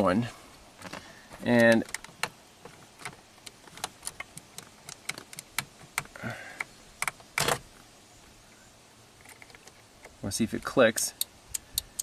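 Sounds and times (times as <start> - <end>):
plastic clicks and rattles: 0.8 - 7.6, 9.2 - 10.2.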